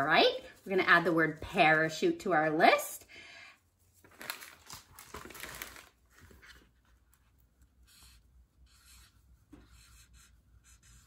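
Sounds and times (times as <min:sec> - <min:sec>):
marker scratching on paper: 0:07.8 - 0:11.0.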